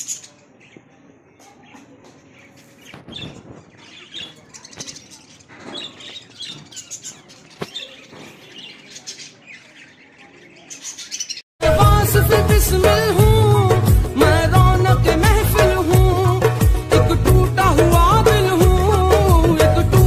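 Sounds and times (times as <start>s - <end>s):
parakeet chicks chirping: 0.0s - 11.5s
loud music: 11.6s - 20.0s.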